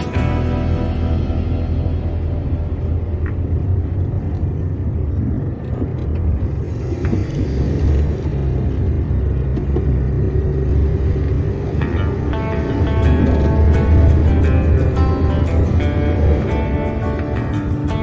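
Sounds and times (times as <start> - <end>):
car engine and tyres rumbling: 0.0 - 18.0.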